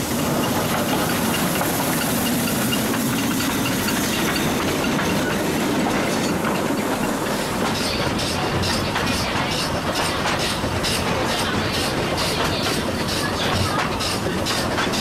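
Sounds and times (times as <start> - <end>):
steam hissing: 0.0 - 15.0.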